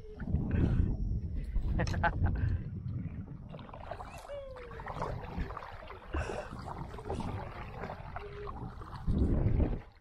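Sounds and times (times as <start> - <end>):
water lapping at hull: 0.0 - 10.0
kayak splashes and knocks: 3.5 - 10.0.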